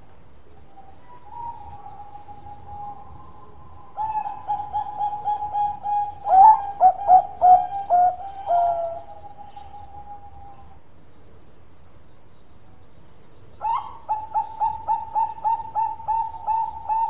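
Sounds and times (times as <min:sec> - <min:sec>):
dove cooing: 0:00.8 - 0:10.8, 0:13.6 - 0:17.0.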